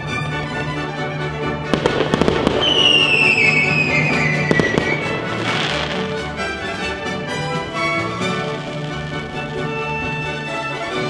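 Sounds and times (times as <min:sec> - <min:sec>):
music: 0:00.0 - 0:11.0
fireworks bangs and crackling: 0:01.7 - 0:06.9, 0:07.7 - 0:10.4
firework whistle falling in pitch: 0:02.1 - 0:05.9.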